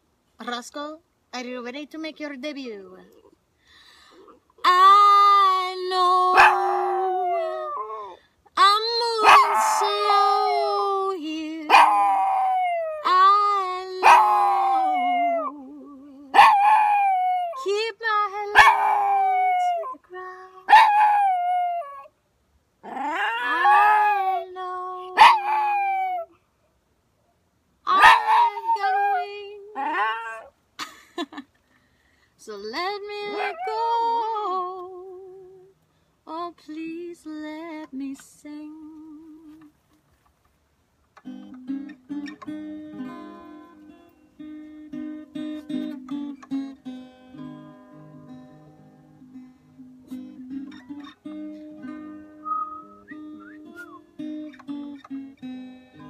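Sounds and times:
acoustic guitar: 0:03.6 - 0:22.0, 0:31.2 - 0:56.0
woman singing long notes: 0:04.6 - 0:16.4, 0:17.5 - 0:20.7, 0:23.4 - 0:25.2, 0:27.9 - 0:30.3, 0:32.4 - 0:39.7
dog howling: 0:06.3 - 0:08.2, 0:09.2 - 0:11.0, 0:11.7 - 0:13.2, 0:14.0 - 0:17.7, 0:18.5 - 0:22.1, 0:22.8 - 0:24.5, 0:25.2 - 0:26.3, 0:27.9 - 0:30.5, 0:33.3 - 0:33.9.

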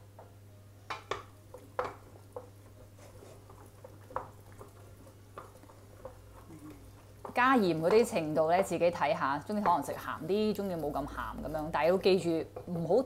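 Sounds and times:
wet squishes of stirred pasta: 0:01.1 - 0:13.0
utensil knocking against pot: 0:07.2 - 0:08.4, 0:09.4 - 0:10.1.

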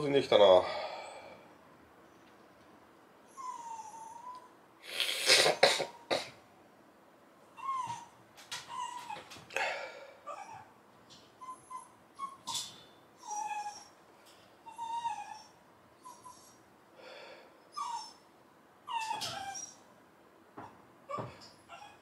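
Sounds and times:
dog whimpering and whining: 0:03.2 - 0:04.6, 0:07.5 - 0:09.5, 0:10.2 - 0:10.8, 0:11.4 - 0:14.0, 0:14.6 - 0:16.7, 0:17.7 - 0:19.9, 0:20.6 - 0:22.0.

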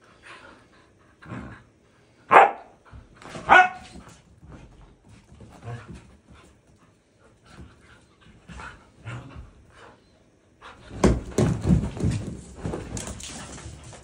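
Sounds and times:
scuffling and thumps: 0:10.8 - 0:14.0.

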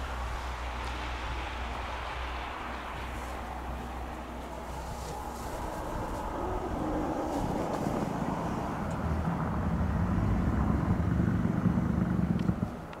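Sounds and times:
tyres rumbling on snow: 0:00.0 - 0:13.0.

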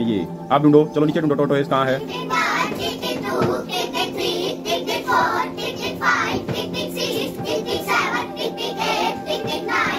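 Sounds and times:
steady held musical notes: 0:00.0 - 0:09.9
child singing: 0:02.0 - 0:09.9.

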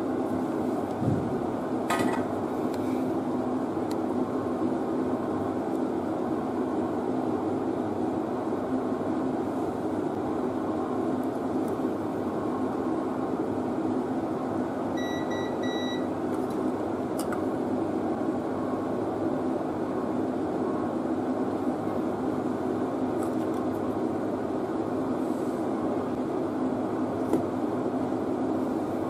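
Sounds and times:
multimeter beeping: 0:15.0 - 0:16.1.

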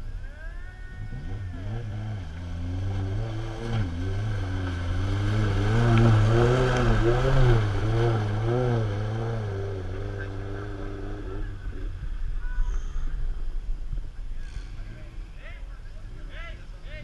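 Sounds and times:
engine revving in mud: 0:01.0 - 0:12.0.

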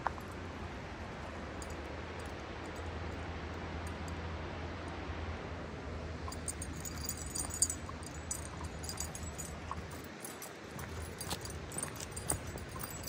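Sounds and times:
low background hum: 0:00.0 - 0:13.0
dog tags jingling: 0:06.3 - 0:13.0.

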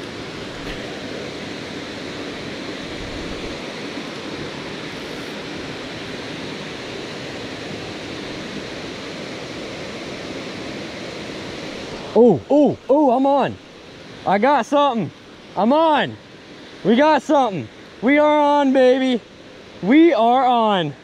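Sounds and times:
waterfall rushing: 0:00.0 - 0:21.0.

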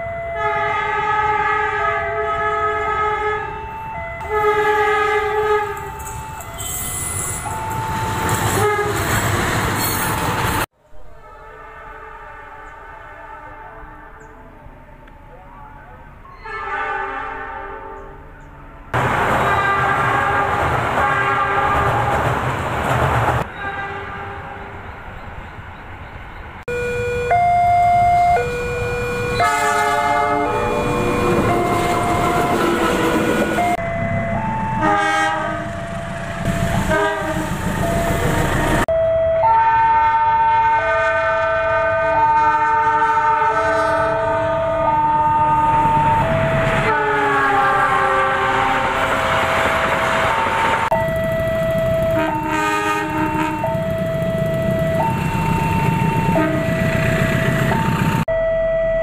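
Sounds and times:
passing trains rumbling: 0:00.0 - 0:58.4
locomotive air horn blasts: 0:00.1 - 0:03.6, 0:04.2 - 0:09.2, 0:11.1 - 0:14.5, 0:16.4 - 0:18.2, 0:18.8 - 0:22.2, 0:23.5 - 0:24.8, 0:26.7 - 0:33.8, 0:34.8 - 0:38.1, 0:39.4 - 0:46.0, 0:46.8 - 0:51.0, 0:51.8 - 0:57.8.

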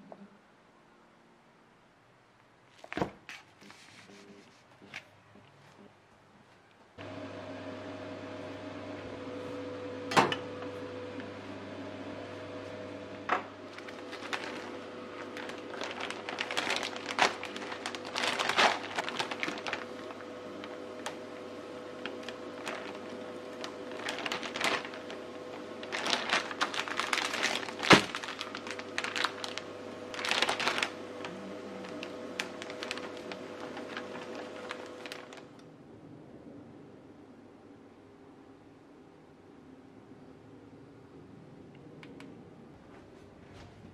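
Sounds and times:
plastic bag crinkling: 0:13.7 - 0:35.6.

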